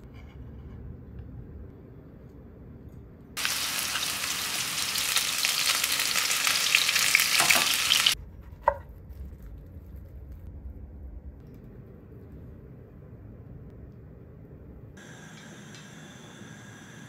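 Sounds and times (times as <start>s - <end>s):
meat sizzling in oil: 3.4s - 8.2s.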